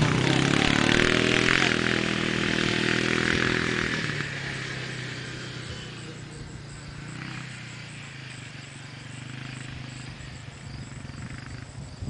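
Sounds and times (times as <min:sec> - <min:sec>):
quad bike engine accelerating: 0:00.0 - 0:12.0.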